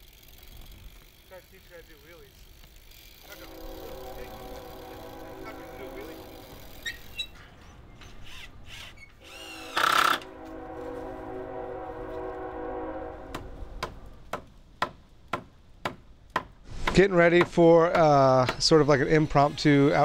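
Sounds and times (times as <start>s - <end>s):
droning tone: 3.2s - 7.3s, 9.6s - 13.7s
loud blare: 3.3s - 6.8s
hammer striking wooden boards: 13.8s - 18.8s.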